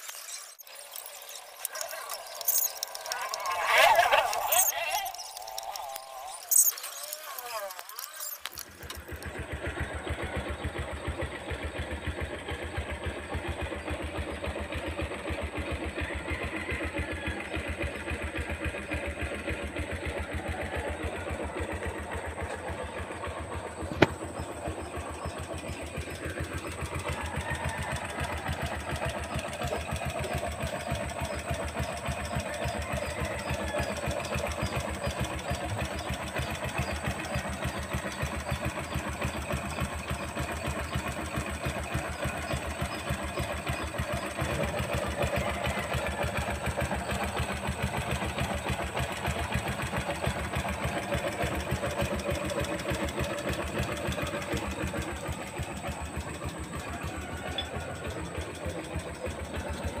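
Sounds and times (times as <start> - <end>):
motorcycle engine idling: 1.0 - 60.0.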